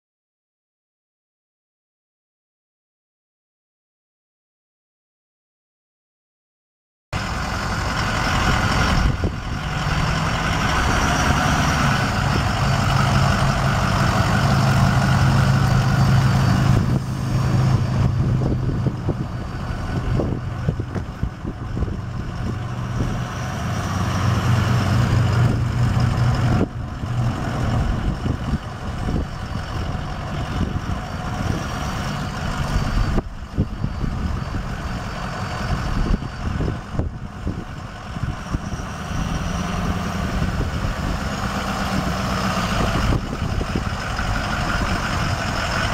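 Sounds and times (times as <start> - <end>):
diesel truck engine running: 7.2 - 45.9.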